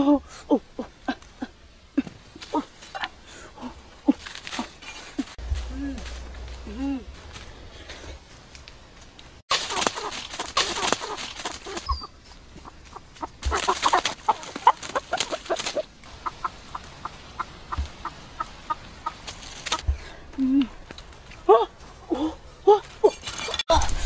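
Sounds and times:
rustling: 2.0 - 22.0
clucking animal calls: 9.5 - 19.9.

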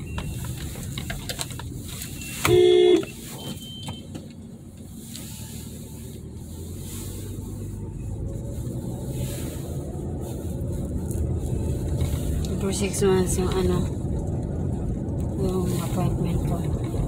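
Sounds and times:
car cabin road rumble: 0.0 - 17.0
short car horn honk: 2.4 - 3.2.

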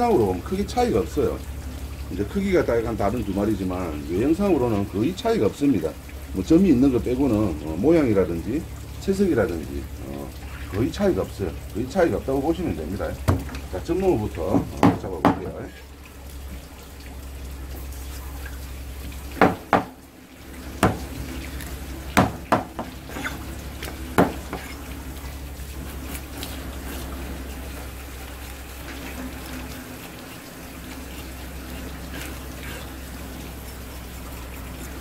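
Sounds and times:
tap water running onto plastic: 0.0 - 35.0
sharp knocks: 13.2 - 13.6, 14.6 - 15.5, 19.4 - 20.0, 20.8 - 21.2, 22.2 - 23.4, 24.2 - 24.7.

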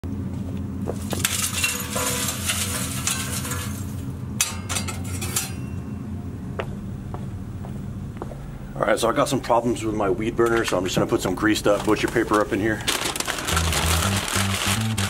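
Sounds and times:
steady low hum: 0.0 - 15.0
paper crinkling and rustling: 11.6 - 15.0.

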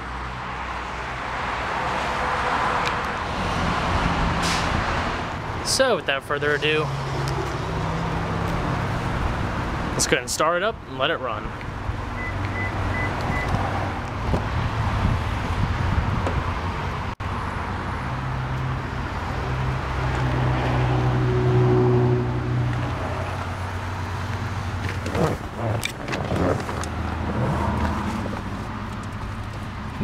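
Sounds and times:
street noise: 0.0 - 30.0
vehicle engine droning: 11.6 - 30.0.

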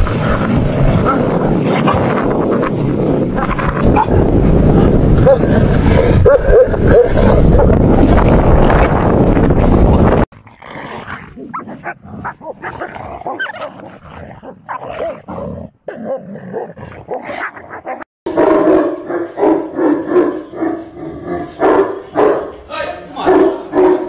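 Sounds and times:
large dog barking loudly: 5.2 - 5.5, 6.1 - 7.8, 14.6 - 24.0
dogs growling: 10.4 - 18.0.

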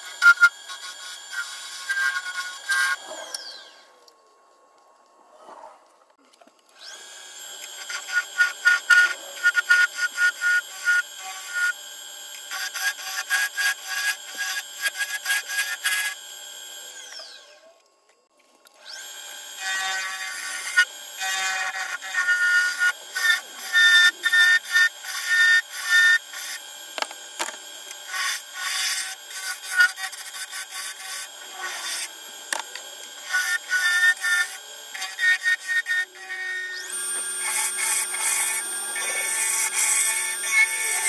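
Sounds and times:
gouge scraping wood on lathe: 12.4 - 16.2, 19.5 - 41.0.

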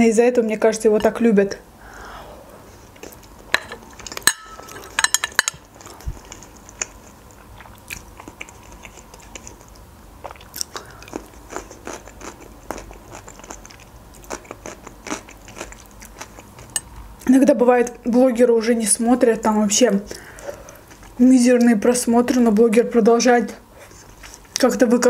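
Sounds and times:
chewing with crisp crunches: 2.8 - 17.0, 20.1 - 21.2.

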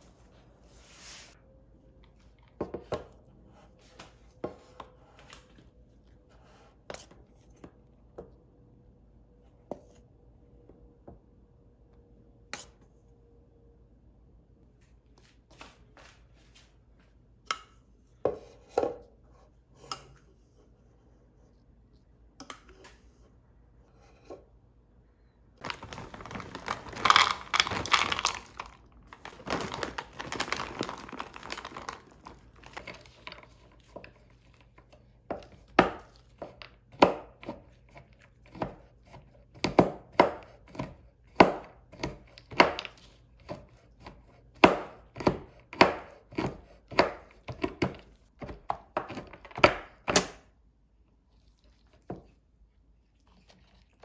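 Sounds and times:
rustling and scraping: 25.6 - 34.6
knife chopping chocolate on wood: 35.3 - 37.6, 39.5 - 50.4.

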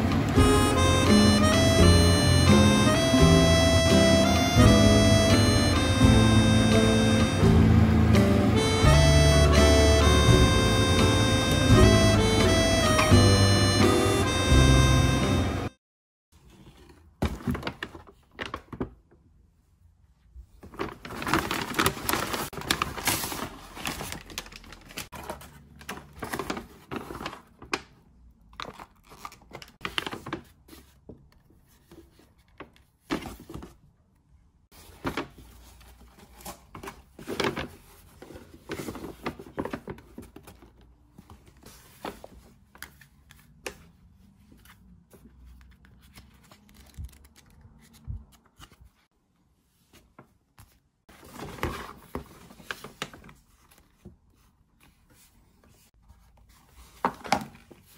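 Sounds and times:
paper bag rustling: 16.4 - 18.9, 20.5 - 28.0, 28.6 - 31.0, 34.7 - 43.0, 51.1 - 57.9.

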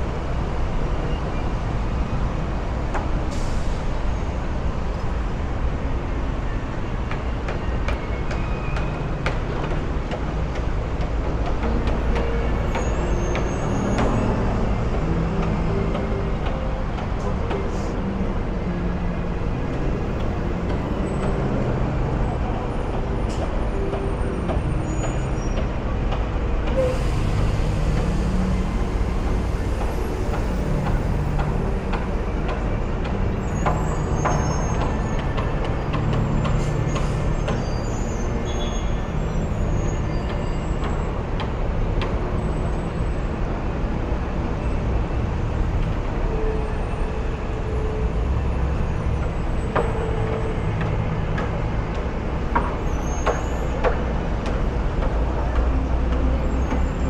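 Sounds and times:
traffic rumble: 0.0 - 57.0
hiss: 26.8 - 30.2.

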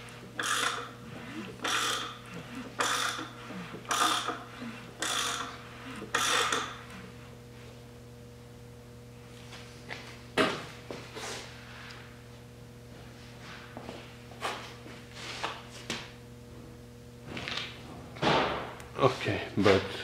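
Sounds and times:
steady low hum: 0.0 - 20.0
ratchet wrench clicking: 1.6 - 2.2, 3.9 - 4.4, 5.0 - 5.5, 6.1 - 6.7.

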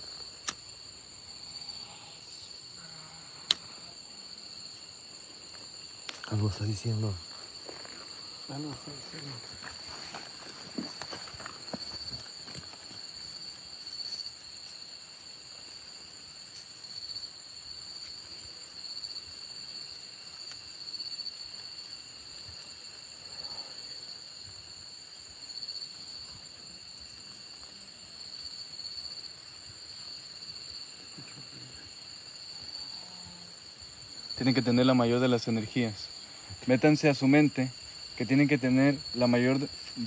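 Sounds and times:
crickets trilling: 0.0 - 40.0
rustling of hands and clothing: 8.8 - 14.7.

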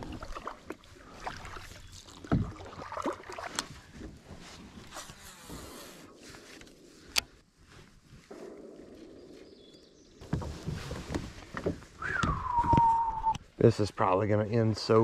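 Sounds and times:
water lapping along kayak: 0.0 - 13.6
small clicks from gear: 6.5 - 7.4.

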